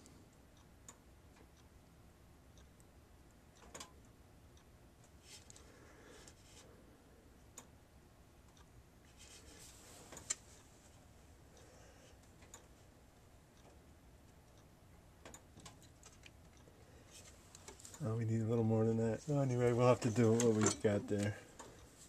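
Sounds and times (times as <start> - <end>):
small clicks: 3.6 - 5.7
soft rustle: 9.1 - 11.3.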